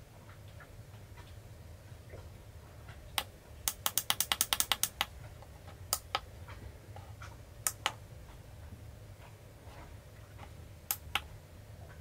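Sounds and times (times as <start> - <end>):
keypad buttons clicking: 3.7 - 5.1.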